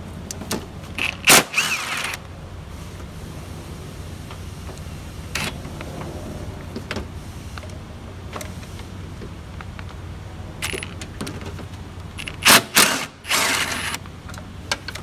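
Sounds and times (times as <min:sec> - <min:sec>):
steady low hum: 0:02.2 - 0:11.2.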